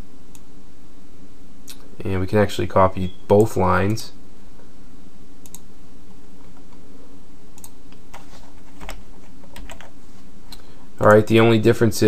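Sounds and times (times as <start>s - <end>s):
steady low hum: 0.0s - 12.0s
keyboard and mouse clicks: 5.4s - 5.7s, 7.6s - 10.6s.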